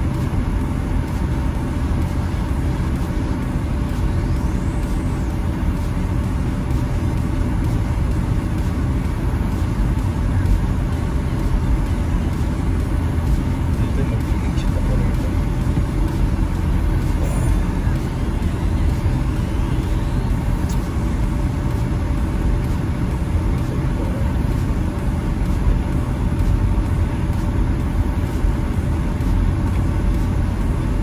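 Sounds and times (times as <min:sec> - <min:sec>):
car cabin road rumble: 0:00.0 - 0:31.0.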